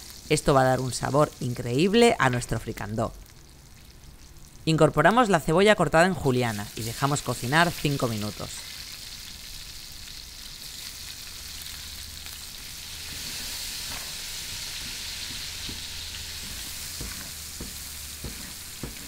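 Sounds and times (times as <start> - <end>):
onions sizzling in oil: 0.0 - 4.7, 6.2 - 19.0
spoon scraping and tapping pan: 13.1 - 19.0.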